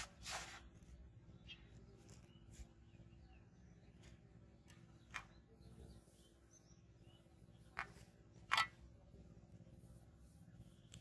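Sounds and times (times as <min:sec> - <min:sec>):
faint bird chirps: 0:00.7 - 0:08.6
fishing rod handling noises: 0:07.7 - 0:08.9.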